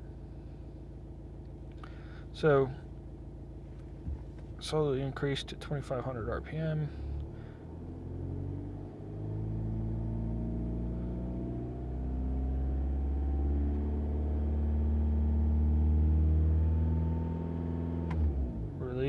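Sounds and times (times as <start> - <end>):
diesel engine revving: 6.6 - 19.0.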